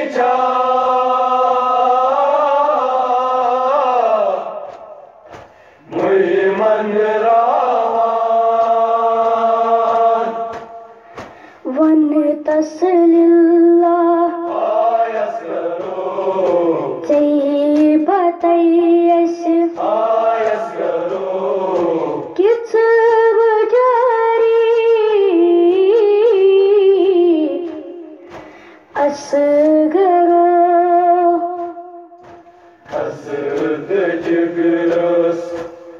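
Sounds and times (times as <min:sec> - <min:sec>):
boy chanting a lament: 0:11.6 - 0:15.4, 0:16.9 - 0:19.9.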